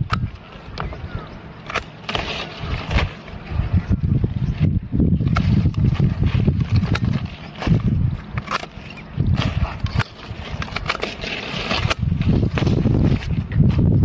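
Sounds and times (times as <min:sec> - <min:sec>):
pruning shears snipping: 0:00.0 - 0:01.0, 0:01.6 - 0:03.2, 0:05.2 - 0:13.4
leaves rustling: 0:01.6 - 0:14.0.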